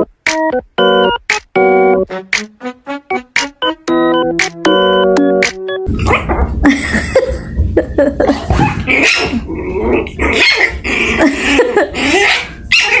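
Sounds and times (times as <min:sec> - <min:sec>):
puppy yapping and growling: 0:08.5 - 0:11.2, 0:12.0 - 0:13.0.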